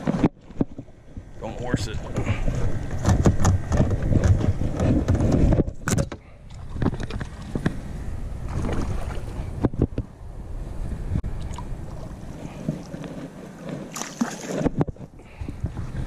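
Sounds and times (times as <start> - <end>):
rumbling wind: 0.0 - 16.0
microphone handling noise: 2.0 - 10.2, 11.0 - 16.0
water splashing: 8.4 - 9.6, 11.3 - 16.0.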